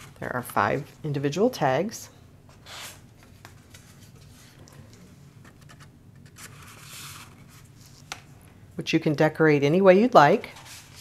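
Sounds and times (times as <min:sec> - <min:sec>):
paper rustle: 0:02.6 - 0:08.3, 0:10.3 - 0:11.0.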